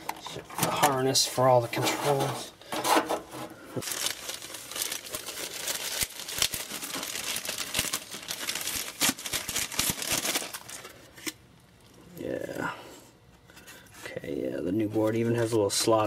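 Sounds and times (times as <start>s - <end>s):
packaging crinkling and rustling: 0.0s - 11.4s.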